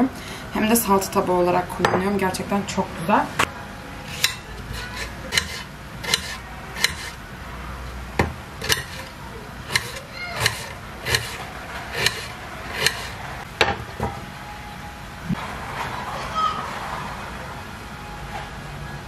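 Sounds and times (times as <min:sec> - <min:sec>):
knife chopping on cutting board: 0:04.1 - 0:07.2, 0:08.2 - 0:09.1, 0:09.7 - 0:13.2.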